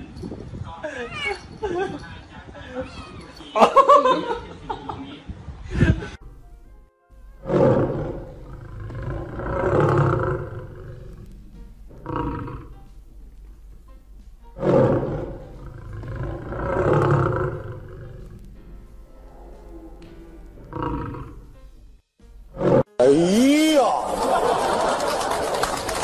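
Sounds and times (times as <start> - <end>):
rough animal roars: 7.4 - 12.9, 14.5 - 18.5, 19.1 - 21.6, 22.5 - 23.2.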